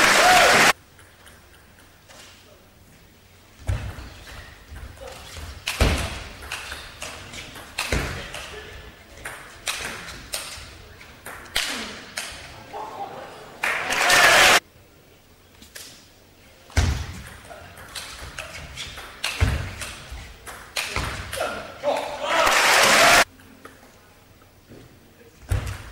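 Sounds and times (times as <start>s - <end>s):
crowd cheering: 0.0s - 0.8s, 12.7s - 14.6s, 21.4s - 23.3s.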